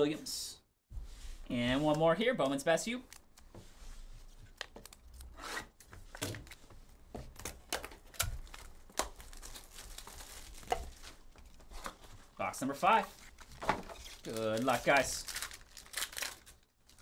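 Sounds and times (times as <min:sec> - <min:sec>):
plastic shrink wrap tearing: 0:08.0 - 0:11.2, 0:13.2 - 0:17.0.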